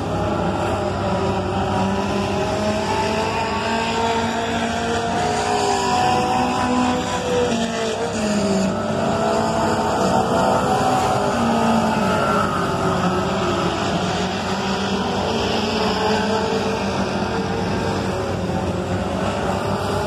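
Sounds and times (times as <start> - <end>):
race car engines roaring: 0.0 - 20.0.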